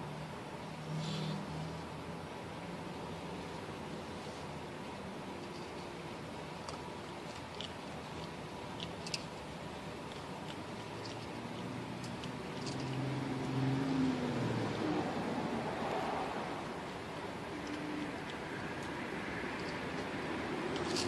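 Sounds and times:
kibble crunching: 6.6 - 13.0
low engine hum: 10.1 - 20.9.

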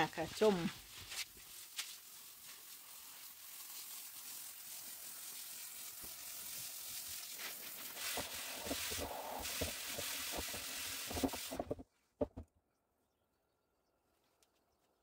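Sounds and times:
hose nozzle spraying water: 0.0 - 11.8
soft knocks: 11.7 - 12.5.

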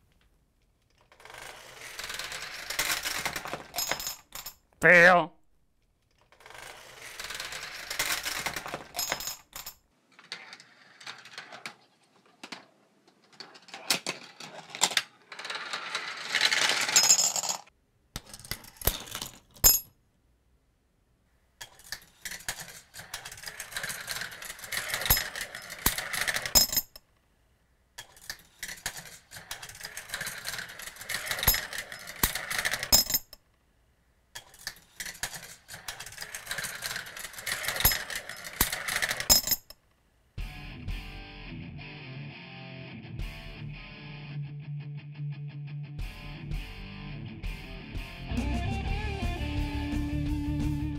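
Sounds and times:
marbles rolling and clattering: 1.0 - 4.6, 6.3 - 19.8, 21.6 - 27.0, 28.0 - 33.4, 34.4 - 39.8.

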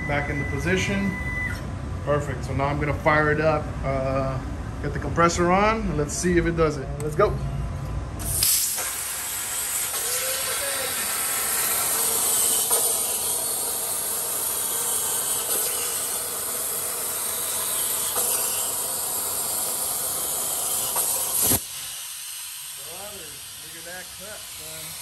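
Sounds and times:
plasma torch hissing: 8.2 - 25.0.

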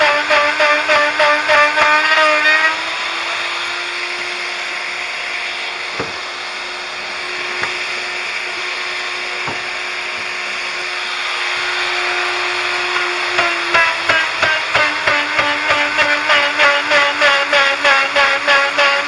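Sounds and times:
electric drill boring into wood: 0.0 - 19.0
short knocks: 5.9 - 6.2.

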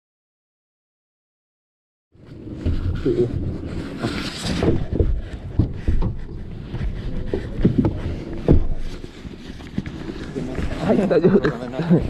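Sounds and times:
microphone handling thumps: 2.5 - 11.0.

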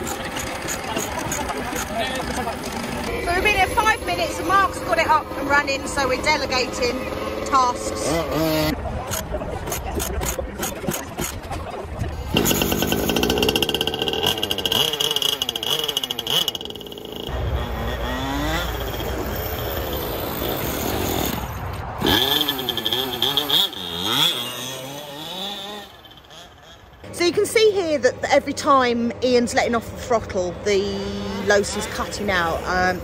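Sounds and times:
model car engine revving: 7.1 - 9.8, 12.3 - 21.4, 22.0 - 26.5.

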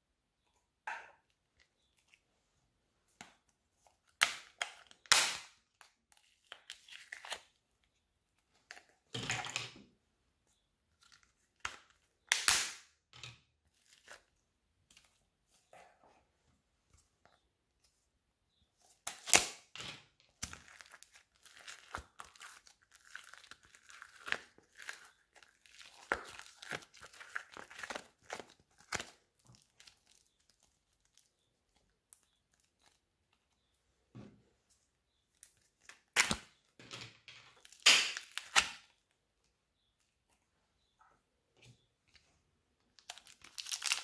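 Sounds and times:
plastic film crinkling and tearing: 20.5 - 31.3, 37.6 - 38.8, 43.0 - 44.0.

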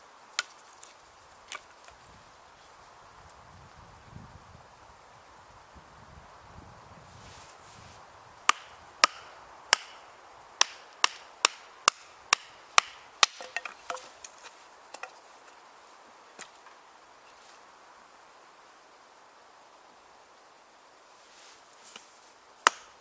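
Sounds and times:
wood splitting cracks and clatters: 12.4 - 15.2.

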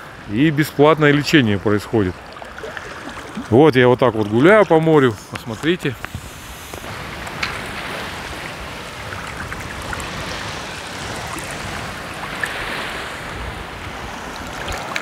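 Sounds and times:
seawater splashing around legs: 2.0 - 13.2.

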